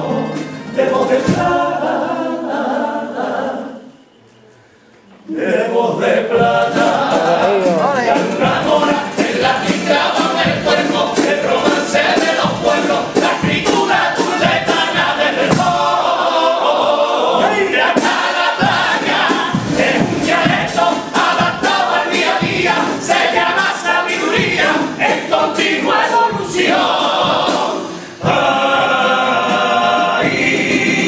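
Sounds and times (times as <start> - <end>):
male choir singing: 0.0 - 4.0, 5.2 - 31.0
steady beat: 6.3 - 16.2, 17.7 - 31.0.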